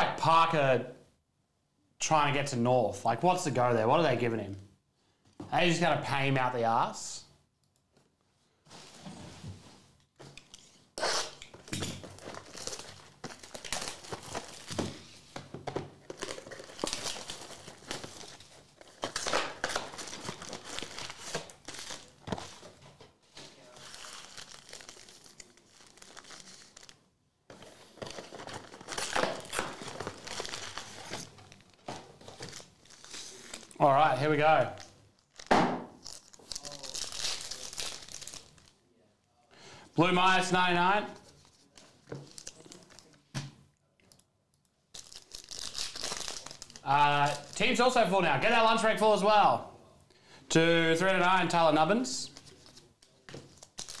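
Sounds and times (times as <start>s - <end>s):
foil packs crinkling: 12.0s - 15.2s, 16.0s - 22.7s, 23.6s - 27.0s, 27.6s - 33.8s, 34.8s - 38.8s, 41.3s - 43.2s, 45.0s - 47.8s, 52.3s - 54.0s.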